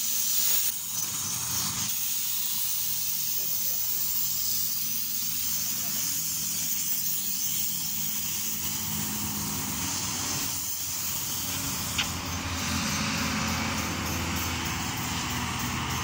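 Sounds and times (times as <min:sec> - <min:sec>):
pump machinery drone: 0:00.0 - 0:16.0
spray hissing: 0:00.0 - 0:16.0
sharp click: 0:11.9 - 0:12.2.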